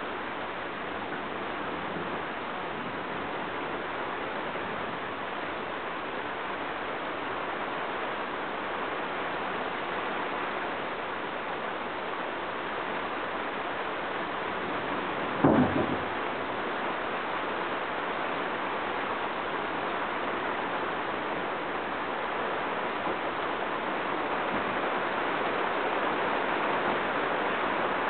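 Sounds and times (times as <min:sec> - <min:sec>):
rain falling: 0:00.0 - 0:28.0
brief thump: 0:15.4 - 0:16.1.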